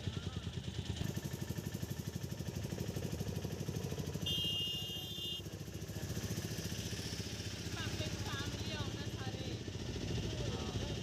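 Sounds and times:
high-pitched horn beep: 0:04.2 - 0:05.4.

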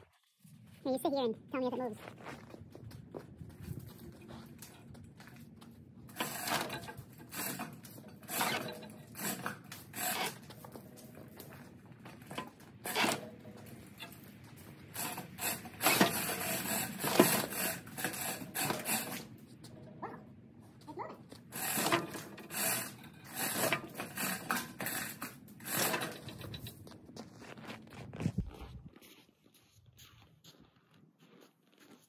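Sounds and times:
chain and bulldozer clanking: 0:06.1 - 0:27.1.

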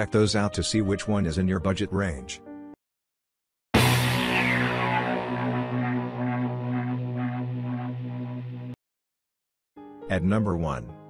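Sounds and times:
low sustained drone music: 0:04.1 - 0:08.8.

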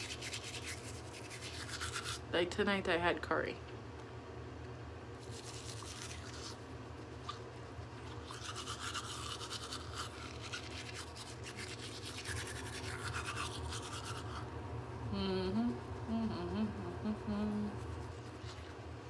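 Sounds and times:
toothbrush scrubbing teeth: 0:00.0 - 0:02.3, 0:05.2 - 0:14.5, 0:15.7 - 0:19.0.

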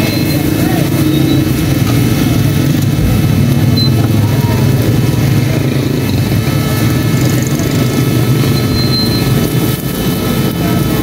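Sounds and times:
loud low mechanical rumble: 0:01.8 - 0:08.6.

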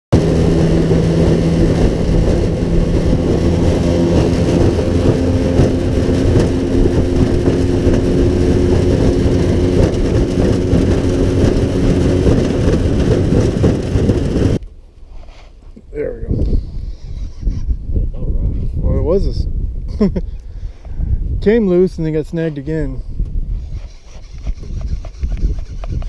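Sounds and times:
outboard motor running: 0:00.1 - 0:14.6
water noise: 0:00.1 - 0:14.6
wind: 0:00.1 - 0:26.0.

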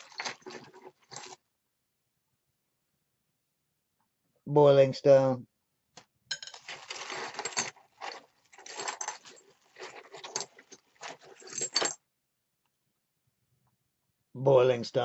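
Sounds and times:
plastic bag crinkling: 0:06.6 - 0:11.8.

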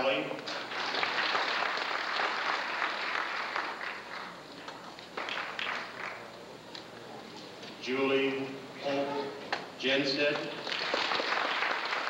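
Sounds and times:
audience applauding: 0:00.5 - 0:04.4, 0:05.1 - 0:06.3, 0:10.5 - 0:12.0.

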